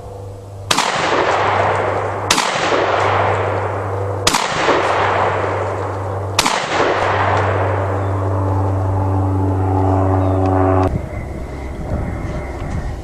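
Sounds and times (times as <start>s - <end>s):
shotgun shots: 0.7s - 8.2s
shotgun action cycling: 6.4s - 7.6s.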